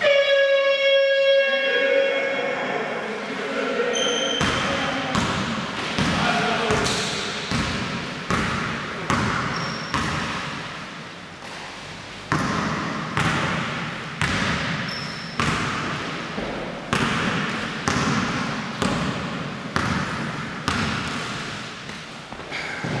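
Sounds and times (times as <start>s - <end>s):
basketball bouncing on hardwood floor: 7.5s - 10.4s, 12.3s - 21.4s.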